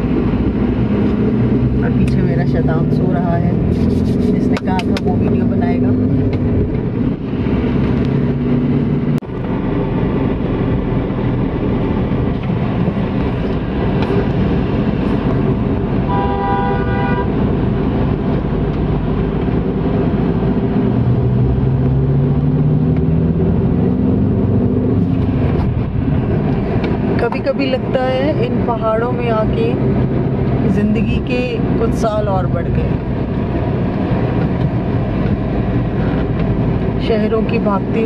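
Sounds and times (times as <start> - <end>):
car engine and road noise: 0.0 - 38.0
vehicle horn honk: 16.1 - 17.4.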